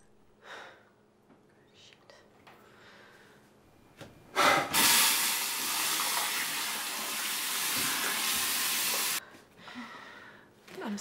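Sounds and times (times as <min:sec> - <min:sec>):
water running from tap: 0:04.7 - 0:09.2.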